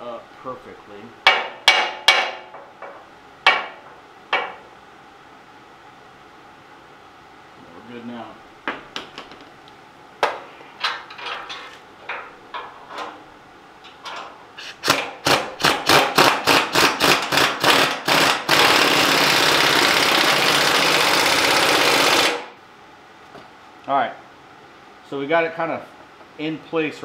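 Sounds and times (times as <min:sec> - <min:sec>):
pneumatic impact wrench: 0:14.6 - 0:22.6.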